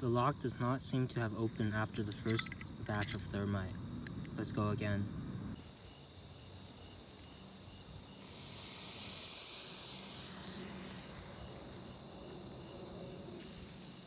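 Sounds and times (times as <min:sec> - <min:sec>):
thermite burning with loud hiss: 0:05.5 - 0:14.0.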